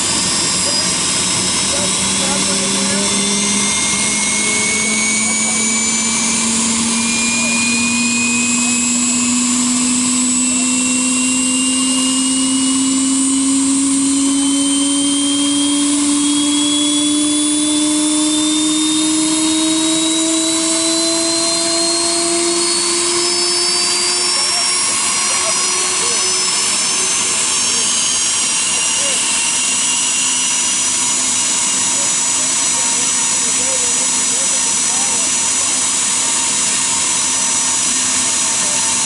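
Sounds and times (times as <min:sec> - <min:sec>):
jet engine spooling up: 0:00.0 - 0:39.0.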